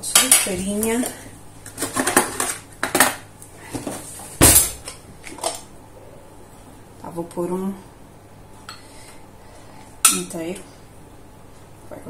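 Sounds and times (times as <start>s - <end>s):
kitchenware clinking: 4.4s - 5.6s.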